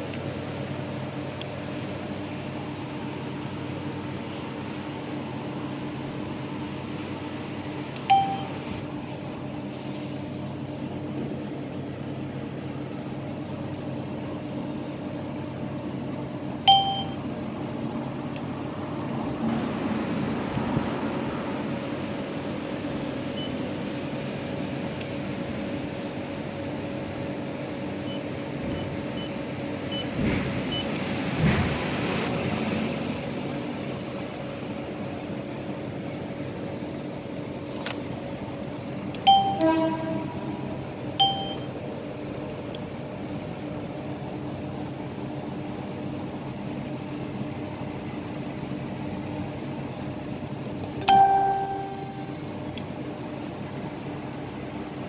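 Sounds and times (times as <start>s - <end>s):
steady low hum: 0.0s - 55.0s
keypad beeps: 8.0s - 8.6s, 16.7s - 17.2s, 28.0s - 30.1s, 36.0s - 36.2s, 39.2s - 39.8s, 41.2s - 41.7s
short electronic beep: 8.1s - 8.6s, 16.7s - 17.2s, 41.2s - 41.7s.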